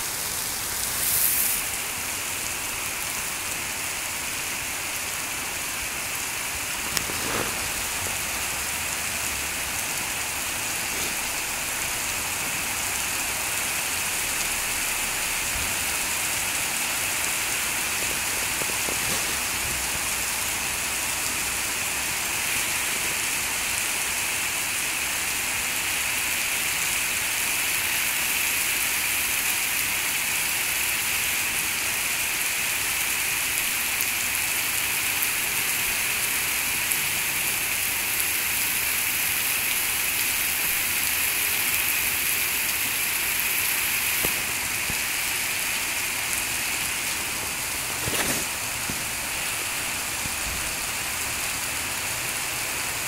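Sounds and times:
heavy rain on pavement: 0.0s - 53.0s.

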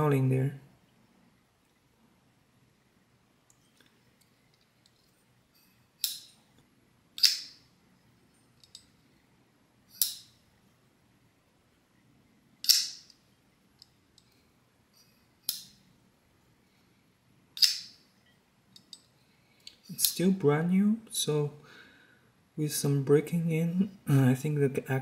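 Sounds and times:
knife blade snapping: 7.2s - 7.6s, 12.6s - 13.1s, 17.6s - 17.9s.

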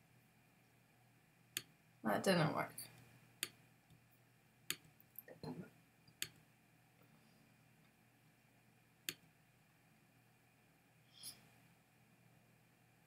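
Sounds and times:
computer mouse clicks: 9.1s - 9.3s.

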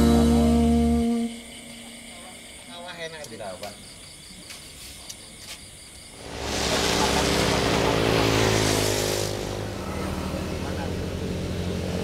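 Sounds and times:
insects chirring: 0.0s - 9.8s
vehicle engine passing: 6.2s - 12.0s.

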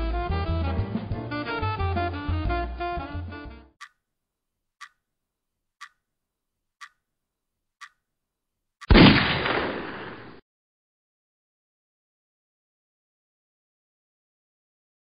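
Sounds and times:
clock ticking: 3.8s - 4.0s, 4.8s - 5.1s, 5.8s - 6.1s, 6.8s - 7.1s, 7.8s - 8.1s
loud gunshot with echo: 8.9s - 10.4s.

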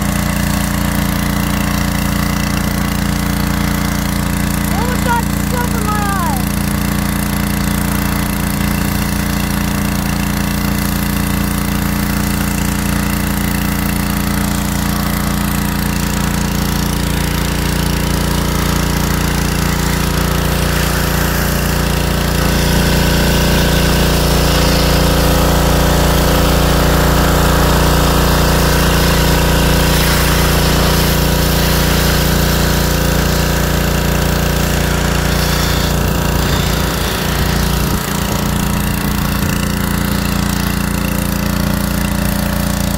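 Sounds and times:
pressure washer engine droning: 0.0s - 42.9s
water jet spraying hiss: 18.6s - 38.7s.

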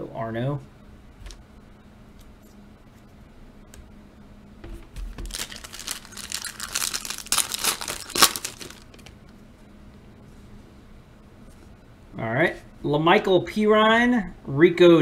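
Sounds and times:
foil wrapper tearing and crinkling: 5.2s - 9.1s.

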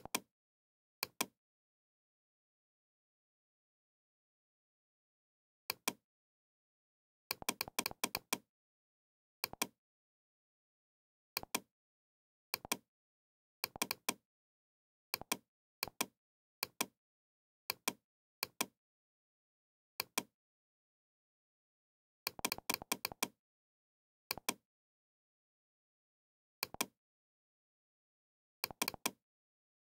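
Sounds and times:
computer mouse clicking: 0.0s - 0.3s, 1.0s - 1.3s, 7.3s - 8.4s, 9.4s - 9.8s, 12.6s - 12.8s, 13.6s - 14.2s, 15.2s - 16.9s, 22.3s - 23.4s, 24.3s - 24.6s, 26.6s - 26.9s, 28.6s - 29.2s.

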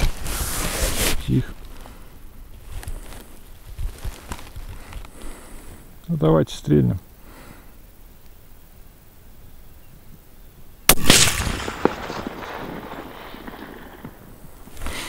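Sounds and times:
rifle shot with echo: 10.9s - 14.4s.

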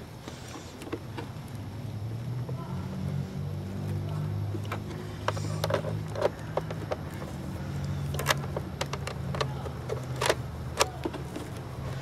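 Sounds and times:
steady low hum: 0.0s - 12.0s
clicks and knocks of handling parts: 0.3s - 1.6s, 3.8s - 12.0s.

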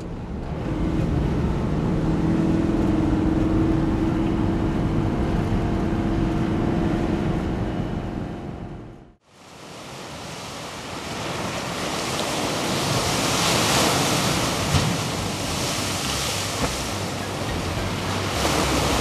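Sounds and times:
waves breaking on pebbles and rocks: 9.3s - 19.0s.

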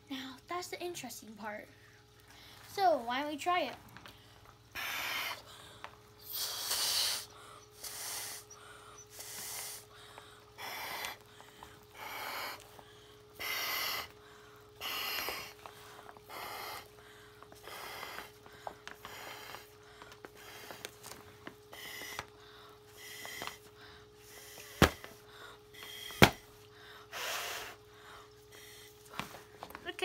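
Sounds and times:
breath blowing into inflation tube: 4.8s - 5.5s, 6.2s - 12.7s, 13.3s - 27.9s.

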